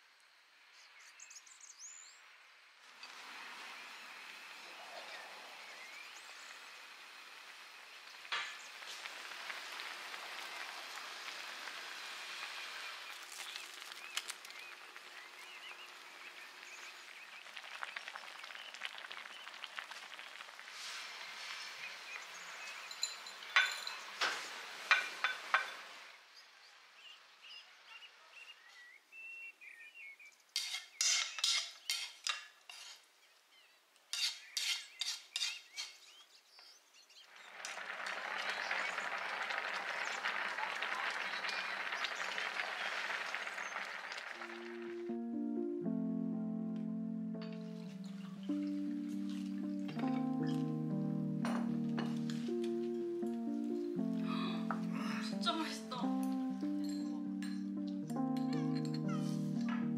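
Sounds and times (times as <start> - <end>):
stew simmering hiss: 3.1 - 22.9
spatula scraping in glass bowl: 30.6 - 33.0.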